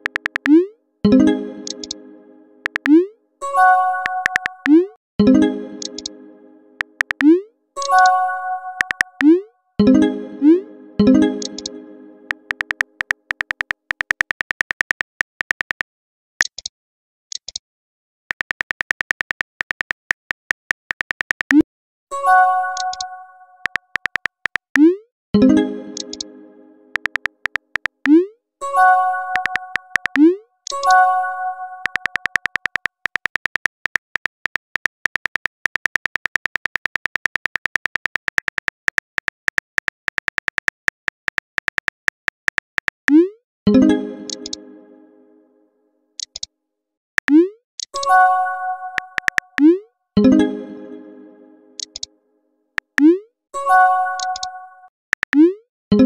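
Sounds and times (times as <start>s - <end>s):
phone keyboard typing clicks: 0.0s - 0.6s, 1.6s - 2.0s, 2.6s - 3.0s, 4.0s - 4.8s, 5.8s - 6.2s, 6.8s - 8.1s, 8.8s - 9.3s, 11.4s - 11.8s, 12.4s - 16.7s, 18.3s - 21.6s, 22.8s - 24.9s, 26.0s - 26.3s, 26.9s - 28.2s, 29.3s - 31.0s, 31.8s - 43.2s, 44.3s - 44.6s, 47.2s - 48.1s, 49.0s - 49.7s, 51.8s - 52.1s, 54.2s - 54.5s, 55.1s - 55.4s.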